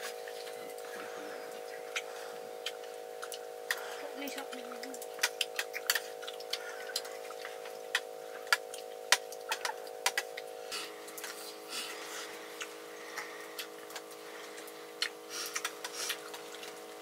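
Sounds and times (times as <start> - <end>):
steady multi-tone hum: 0.0 - 17.0
sharp clicks and snaps: 7.9 - 10.5, 13.6 - 16.8.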